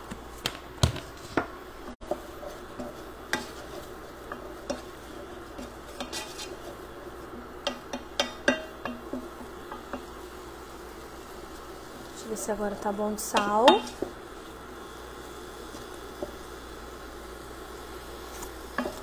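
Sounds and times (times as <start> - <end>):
wooden spoon stirring in pot: 1.0 - 19.0
spoon knocking against pot: 7.6 - 10.1, 13.4 - 14.1.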